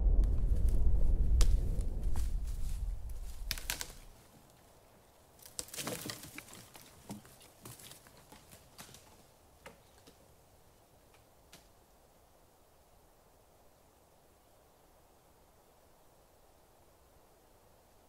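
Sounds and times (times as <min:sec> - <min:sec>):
deep rumble: 0:00.0 - 0:04.1
cracks and rustles: 0:01.4 - 0:04.7, 0:05.3 - 0:10.3.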